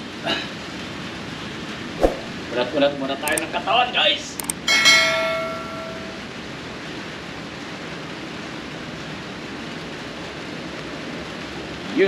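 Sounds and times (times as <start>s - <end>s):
rain on a metal roof: 6.8s - 12.0s.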